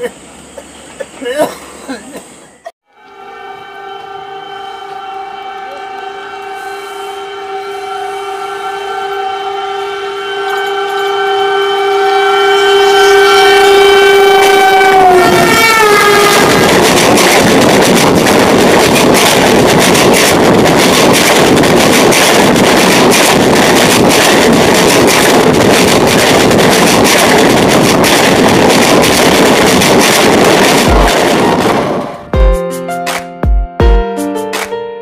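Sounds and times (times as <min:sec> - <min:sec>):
locomotive horn blast: 0:02.9 - 0:17.0
train coaches rushing and rattling: 0:13.7 - 0:32.3.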